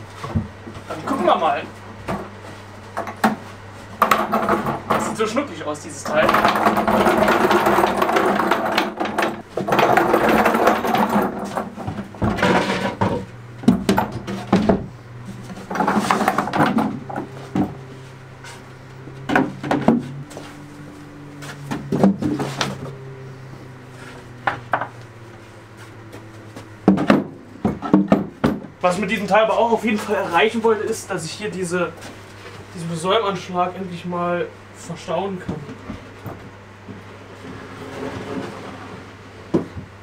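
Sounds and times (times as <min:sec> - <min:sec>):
low steady hum: 0:00.0 - 0:40.0
wooden boards knocking and sliding: 0:03.0 - 0:05.1, 0:06.1 - 0:28.8, 0:39.5 - 0:40.0
cart rolling on brick floor: 0:06.0 - 0:26.8, 0:37.4 - 0:39.3.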